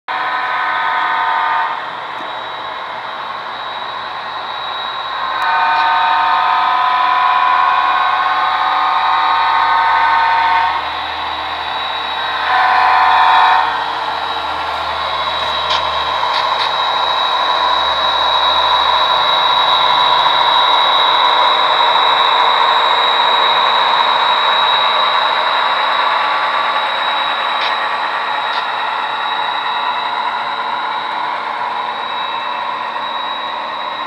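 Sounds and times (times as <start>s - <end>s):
thin high whine: 0.1s - 34.0s
multi-chime air horn blasts: 5.3s - 11.0s, 12.0s - 16.8s
model diesel engine sound: 10.4s - 29.5s.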